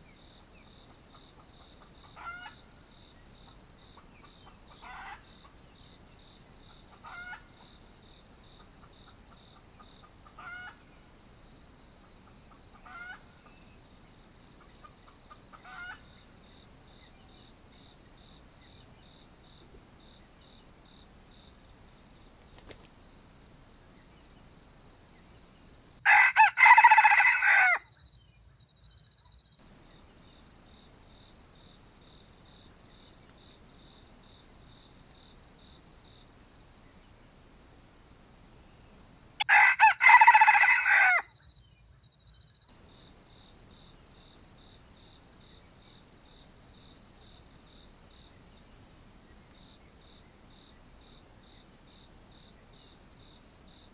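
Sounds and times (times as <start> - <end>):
high insect buzz: 17.8 - 25.7
rooster crowing: 26.0 - 27.8, 39.4 - 41.3.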